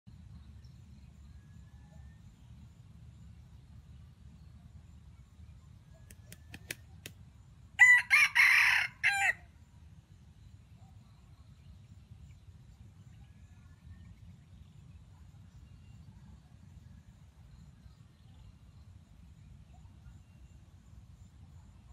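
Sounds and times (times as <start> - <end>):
rooster crowing: 7.8 - 9.4.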